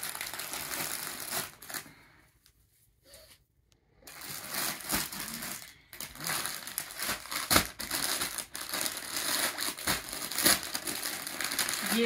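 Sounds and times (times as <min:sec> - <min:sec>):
plastic packets crinkling: 0:00.0 - 0:02.1, 0:04.0 - 0:12.0.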